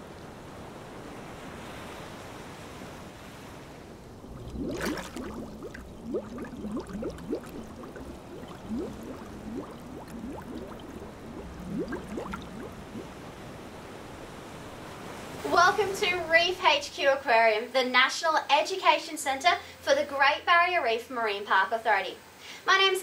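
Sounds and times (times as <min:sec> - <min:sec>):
water rushing like surf: 0:00.0 - 0:16.2
water bubbling: 0:04.0 - 0:14.3
water splash: 0:04.1 - 0:13.4.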